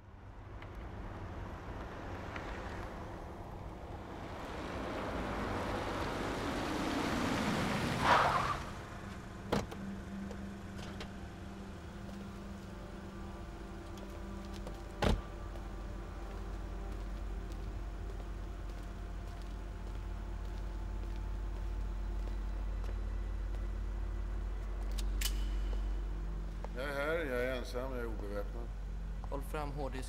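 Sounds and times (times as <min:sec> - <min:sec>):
car driving on wet pavement: 0:00.9 - 0:09.7.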